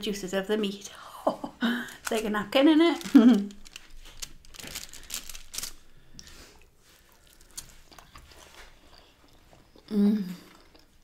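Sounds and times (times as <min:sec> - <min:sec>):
bread tearing over foil tray: 0:02.0 - 0:05.9
chewing with mouth sounds: 0:03.5 - 0:11.0.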